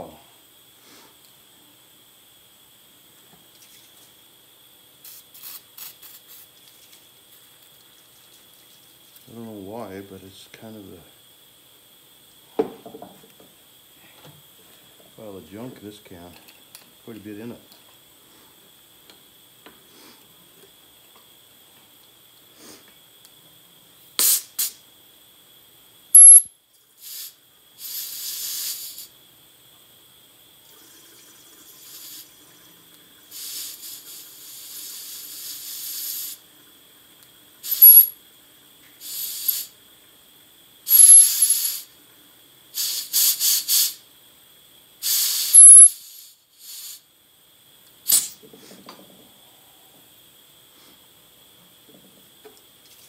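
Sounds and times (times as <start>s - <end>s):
compressed air hissing: 5.0s - 6.5s, 22.5s - 22.9s, 24.2s - 24.8s, 27.0s - 29.2s, 31.7s - 32.3s, 33.3s - 36.4s, 37.6s - 38.2s, 39.0s - 39.8s, 40.8s - 42.0s, 42.7s - 44.0s, 45.0s - 47.1s, 48.0s - 48.8s
sharp high whistle: 26.2s - 26.5s, 37.7s - 38.2s, 40.9s - 41.6s, 45.2s - 46.0s.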